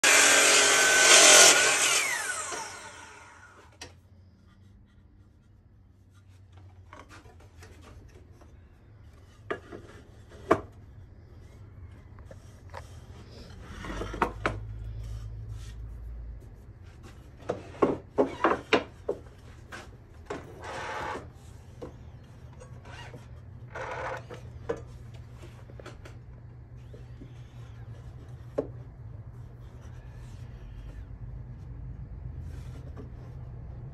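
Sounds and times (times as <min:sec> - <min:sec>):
miter saw blade winding down: 0:00.0 - 0:03.7.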